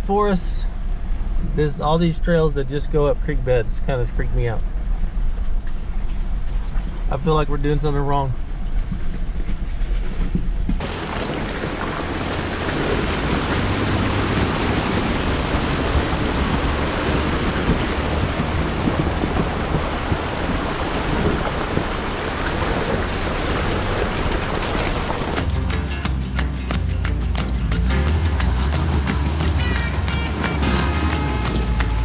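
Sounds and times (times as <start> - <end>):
engine low hum: 0.0 - 32.0
water splashing around tyres: 8.4 - 32.0.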